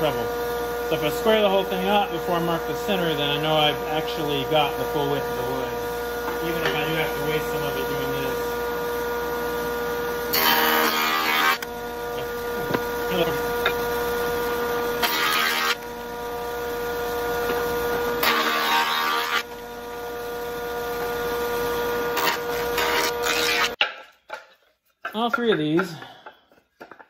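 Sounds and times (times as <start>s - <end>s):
jointer humming: 0.0s - 23.8s
cutterhead cutting wood: 10.3s - 16.0s, 17.4s - 19.6s, 22.0s - 23.9s.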